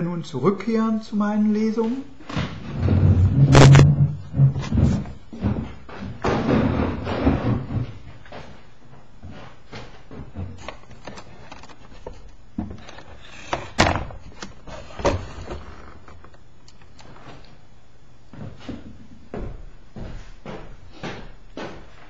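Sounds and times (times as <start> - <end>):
wooden knocks and clunks: 2.3 - 8.6.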